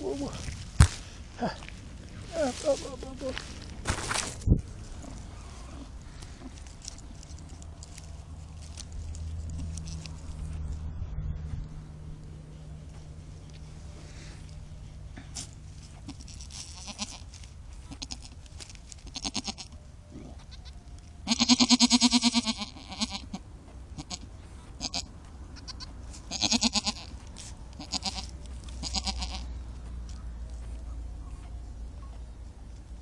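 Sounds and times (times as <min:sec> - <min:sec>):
goats bleating: 0:16.1 - 0:17.3, 0:17.9 - 0:18.4, 0:19.1 - 0:23.4, 0:24.0 - 0:29.6.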